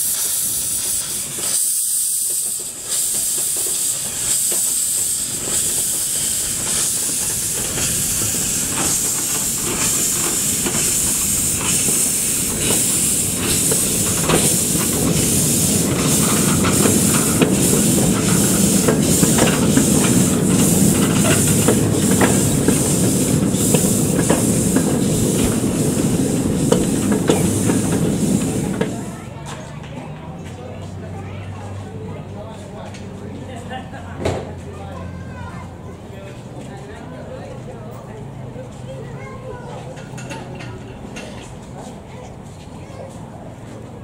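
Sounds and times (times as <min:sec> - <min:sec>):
escaping steam hiss: 0:00.0 - 0:29.2
steam engine exhaust beats: 0:00.0 - 0:29.4
train rumbling on rails: 0:00.0 - 0:44.0.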